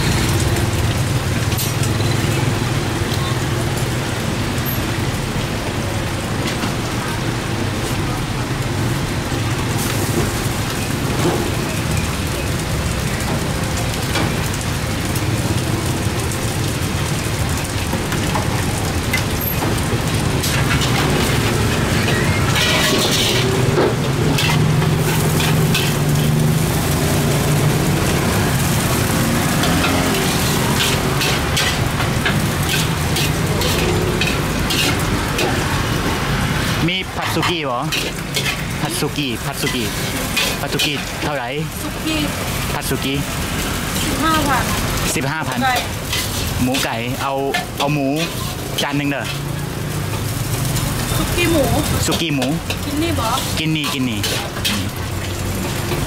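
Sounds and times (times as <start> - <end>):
food sizzling in a wok: 0.0 - 56.0
metal utensils scraping a wok: 18.1 - 41.3, 43.7 - 56.0.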